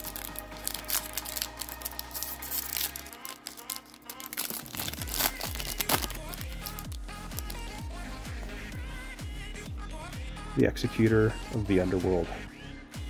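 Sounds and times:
foil wrapper crinkling and tearing: 0.0s - 7.7s
background music with low beat: 0.0s - 13.0s.

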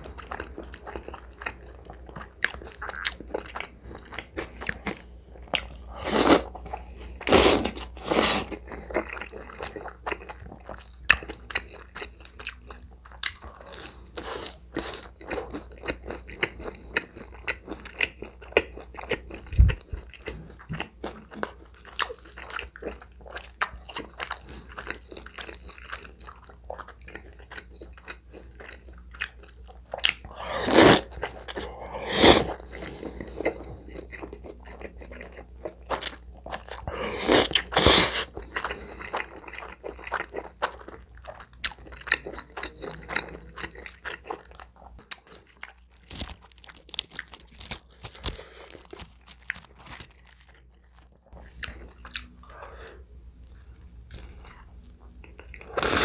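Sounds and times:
slurping noodles: 30.3s - 33.6s, 36.8s - 38.3s.

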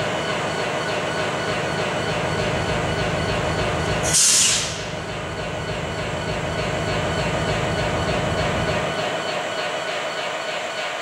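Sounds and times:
diesel locomotive engines running: 0.0s - 11.0s
brief loud air hiss: 4.1s - 4.8s.

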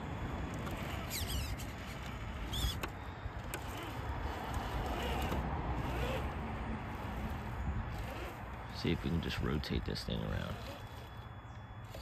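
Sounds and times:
electric motor whirring: 0.0s - 12.0s
tires clicking against ground: 0.0s - 12.0s.

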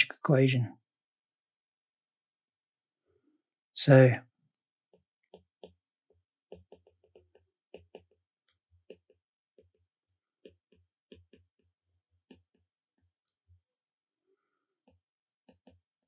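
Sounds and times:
stylus tapping on glass screen: 6.5s - 8.2s.

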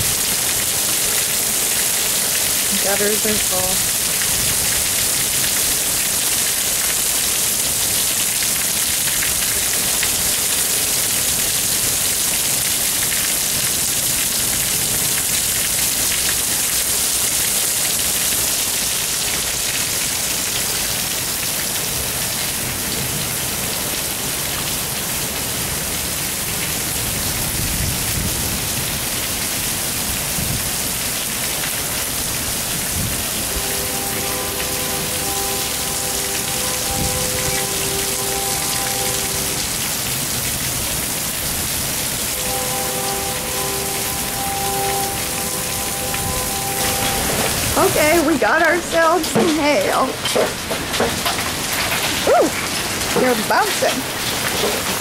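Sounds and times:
rain falling: 0.0s - 55.0s
rainwater pouring off eaves: 0.0s - 55.0s.

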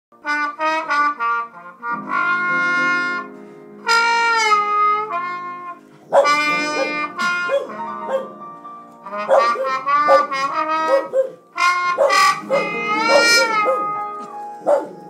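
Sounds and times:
piano: 0.1s - 15.0s
slide trombone playing jazz: 0.2s - 15.0s
dog howling: 6.1s - 8.3s, 12.0s - 14.1s.

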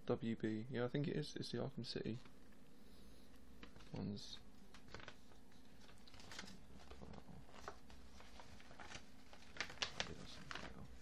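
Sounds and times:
rustling packaging: 3.6s - 11.0s.

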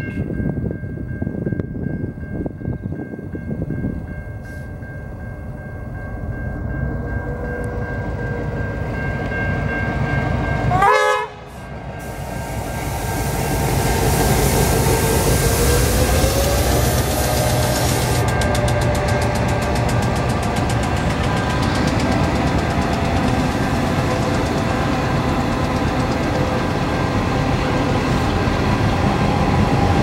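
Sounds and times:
locomotive engine rumble: 3.6s - 30.0s
carriages rushing on track: 6.6s - 30.0s
train horn blast: 10.7s - 12.2s.

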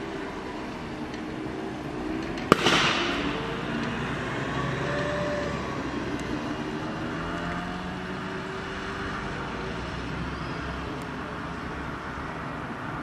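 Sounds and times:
sharp bang: 2.5s - 4.4s.

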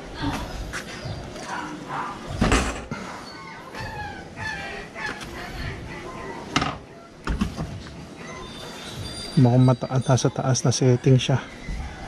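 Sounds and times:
chickens clucking: 0.8s - 9.8s.

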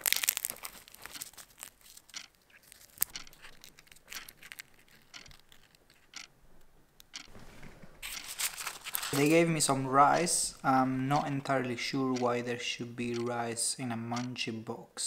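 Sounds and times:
fried pastry crackling: 0.0s - 6.2s, 8.1s - 10.6s
small clicks: 0.2s - 7.3s, 14.1s - 14.3s.

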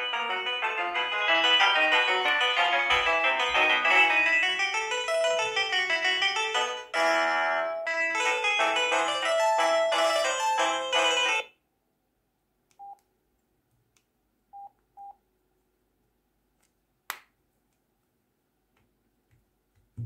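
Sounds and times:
phone ringtone melody: 0.0s - 11.5s.

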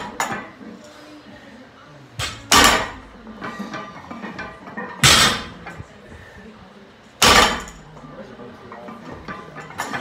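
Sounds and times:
faint background music: 0.0s - 10.0s
barbells dropping on rubber floor: 2.2s - 3.1s, 4.4s - 5.7s, 7.2s - 7.8s.

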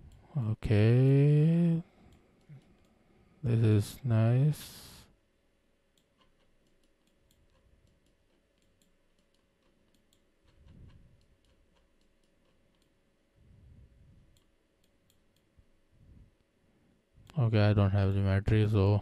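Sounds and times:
computer mouse clicks: 5.9s - 13.0s
soft low rumble: 13.4s - 14.4s, 15.6s - 16.4s.

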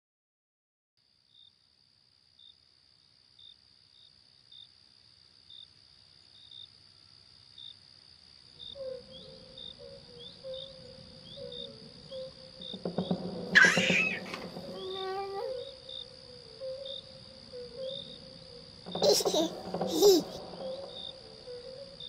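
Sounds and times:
insect trill and chirps: 1.0s - 22.0s
downward-sliding chirps: 13.6s - 15.2s.

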